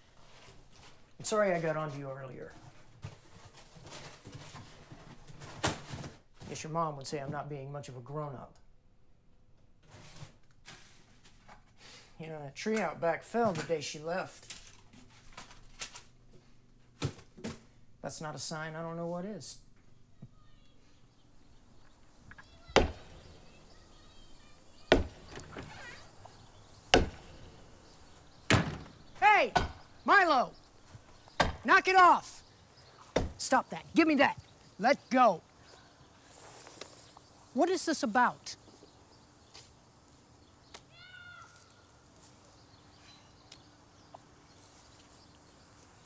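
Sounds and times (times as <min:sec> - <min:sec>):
bat hitting wood: 0:22.4 - 0:23.4, 0:24.9 - 0:30.0, 0:31.4 - 0:31.7
faint animal call: 0:40.9 - 0:41.8.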